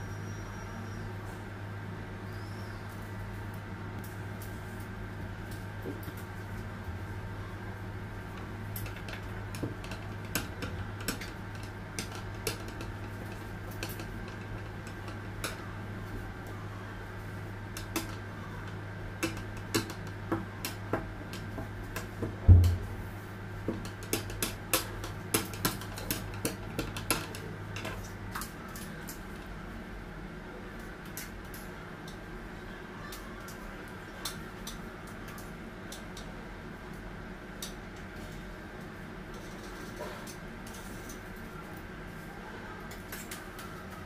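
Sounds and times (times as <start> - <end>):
steady low hum: 0.0 - 44.0
loud knock: 22.4 - 23.0.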